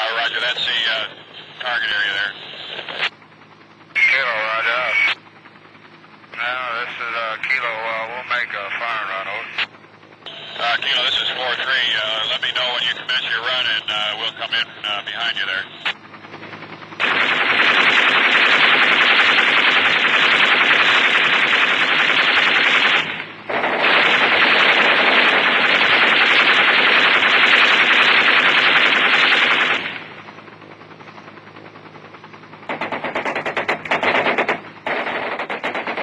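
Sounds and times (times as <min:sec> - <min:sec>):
low steady hum: 0:00.0 - 0:36.0
machine guns firing bursts: 0:17.0 - 0:30.1, 0:32.7 - 0:36.0.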